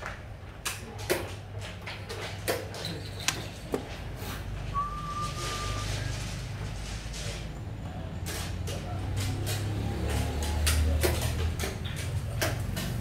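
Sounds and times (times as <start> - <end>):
faint whistle-like tone: 4.7 - 6.1.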